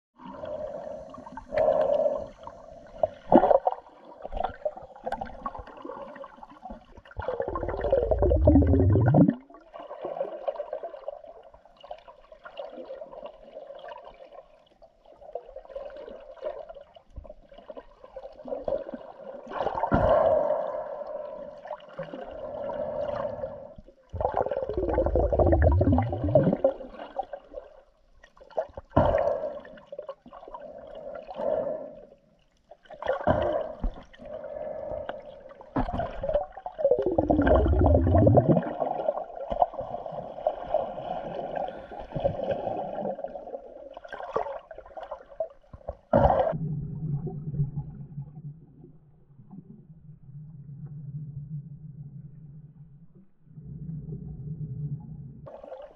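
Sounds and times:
gurgling water surge: 7.2s - 9.5s, 22.6s - 27.2s, 35.7s - 43.4s.

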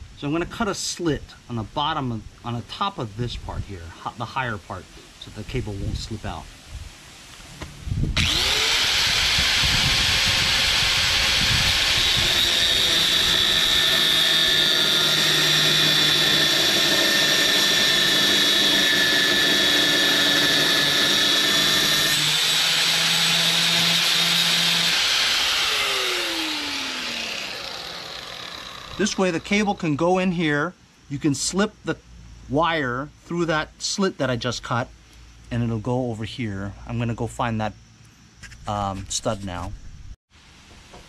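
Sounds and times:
angle grinder cutting metal: 8.2s - 29.9s.

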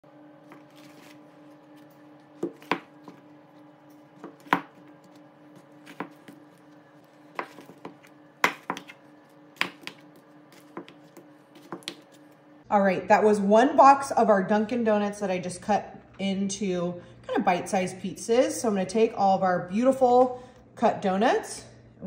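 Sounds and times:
faint steady hum: 0.0s - 22.0s
blade chopping on plastic board: 2.4s - 3.3s, 4.1s - 6.4s, 7.3s - 12.1s.

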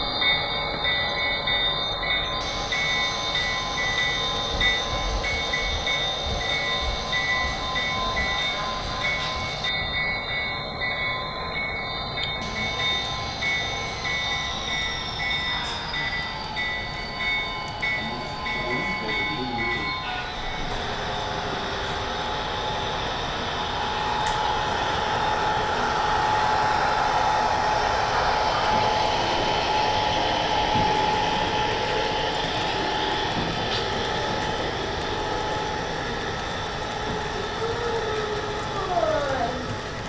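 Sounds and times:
steady tone: 0.0s - 40.0s.

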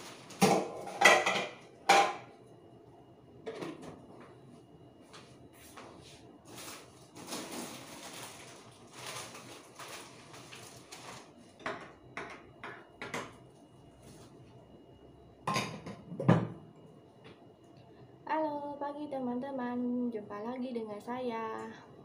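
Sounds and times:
dishes and utensils clattering: 0.4s - 2.3s, 15.5s - 16.6s.

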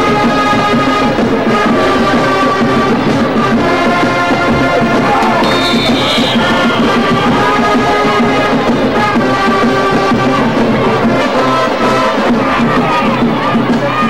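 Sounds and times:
brass band playing: 0.0s - 14.0s.

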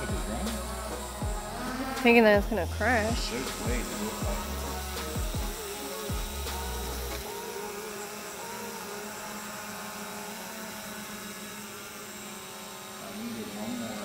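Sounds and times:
drone propellers whining: 0.0s - 14.0s.

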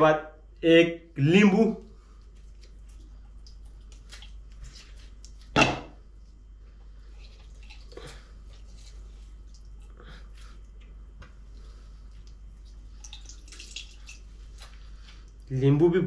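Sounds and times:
lemon squeezing with wet crackles: 1.8s - 15.6s
juice dripping into bowl: 1.9s - 5.6s, 6.6s - 15.5s.

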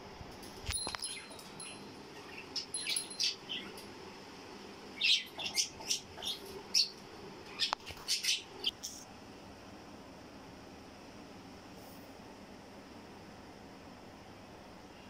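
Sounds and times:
budgerigars chirping: 5.0s - 6.9s.

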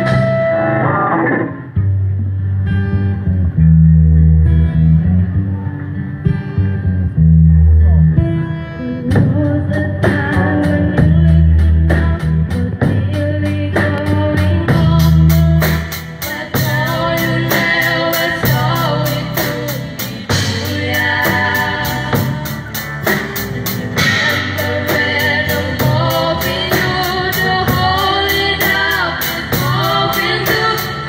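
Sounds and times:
live band playing: 0.0s - 31.0s
girls singing: 12.8s - 22.6s, 24.0s - 31.0s.

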